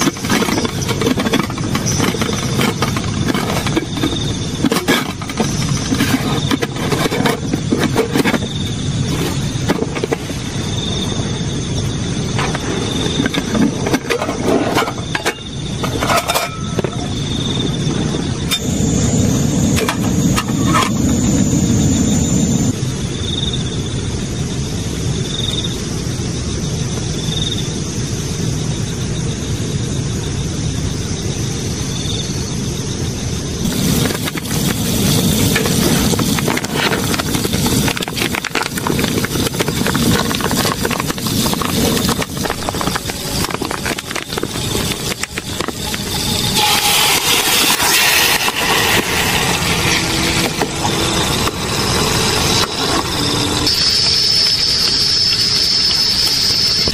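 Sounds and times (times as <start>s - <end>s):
rain falling: 47.8s - 53.7s.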